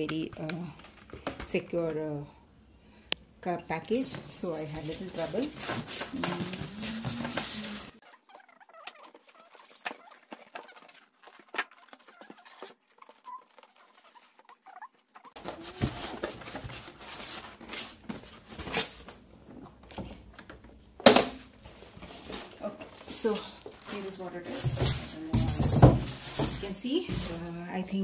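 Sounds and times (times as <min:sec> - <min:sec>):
polystyrene foam squeaking: 0:04.6 - 0:18.9, 0:21.8 - 0:27.5.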